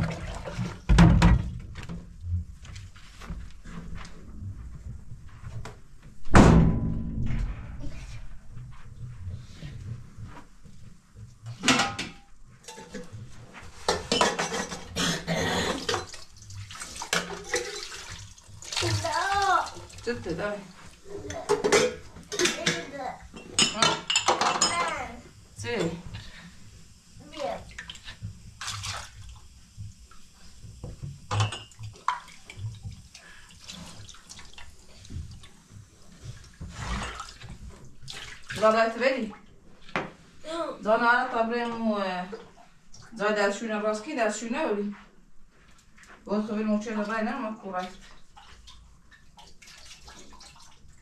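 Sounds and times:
loud metallic clank: 6.3s - 8.1s
metal pots and utensils clattering: 11.5s - 16.3s, 16.9s - 18.1s, 21.2s - 25.2s, 31.3s - 32.7s
water dripping: 15.7s - 21.6s, 27.3s - 35.6s, 47.0s - 51.0s
hands splashing water in metal pot: 15.8s - 20.1s, 27.7s - 29.3s, 47.8s - 51.0s.

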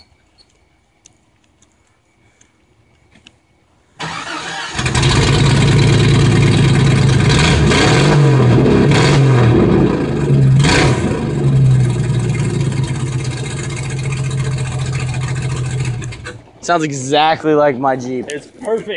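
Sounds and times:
engine starting and revving: 4.0s - 16.4s.

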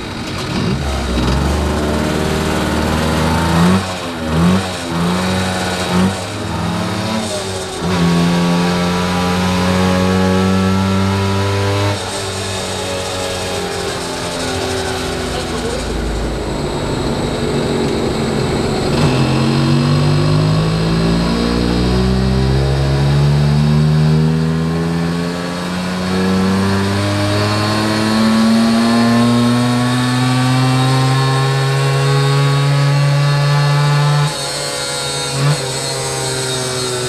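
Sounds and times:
moped engine revving under load: 0.0s - 37.0s
engine blip: 13.9s - 22.8s.

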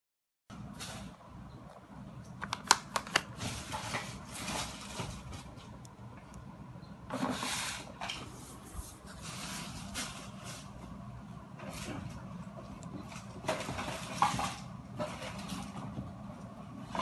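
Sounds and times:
low steady hum: 0.5s - 17.0s
plastic blister pack clicks: 2.4s - 3.3s
plastic rustling: 2.4s - 5.8s, 7.1s - 11.0s, 11.6s - 16.2s.

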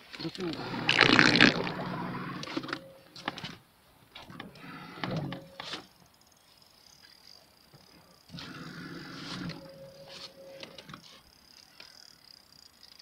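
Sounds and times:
rustling in inflatable boat: 0.6s - 2.7s.

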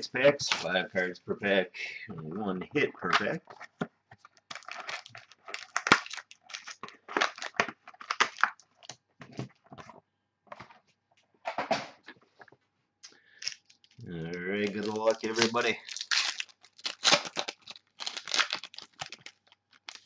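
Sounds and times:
plastic wrap crinkling: 4.2s - 9.0s, 13.3s - 20.0s.

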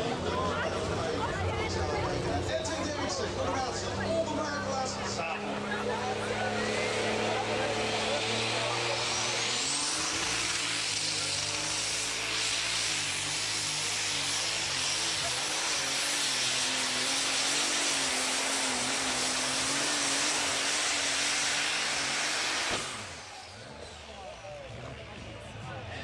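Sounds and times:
diesel engine roaring: 0.0s - 26.0s.

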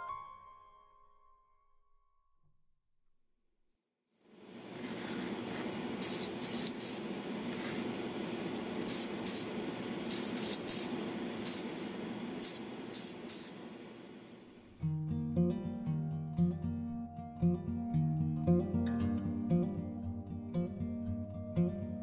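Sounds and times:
fan humming: 4.2s - 14.8s
spray paint hisses: 6.0s - 7.9s, 8.8s - 13.6s.

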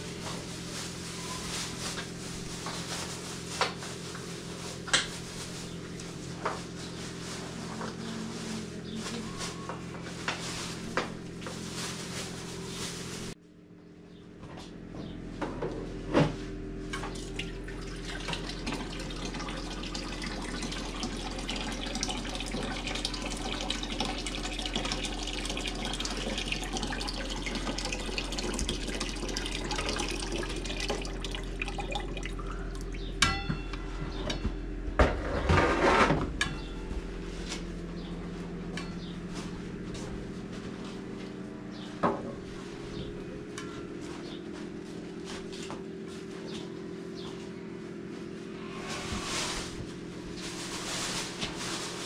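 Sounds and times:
tap water running into pot: 17.2s - 32.9s
metal pot clanking: 33.2s - 33.8s.

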